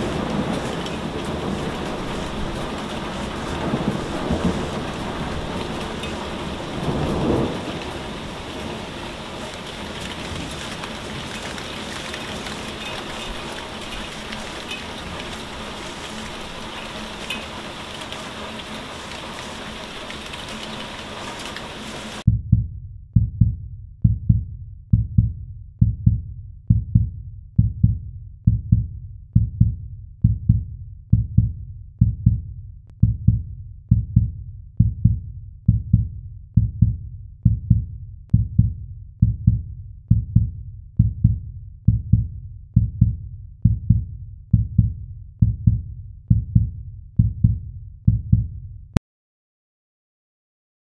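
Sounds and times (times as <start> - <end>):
deep thudding beat: 22.3 - 49.0.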